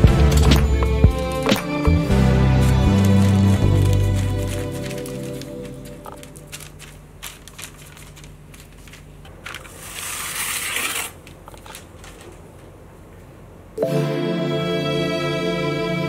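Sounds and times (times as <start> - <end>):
baking paper crinkling: 2.2 - 12.8
music note: 13.8 - 16.0.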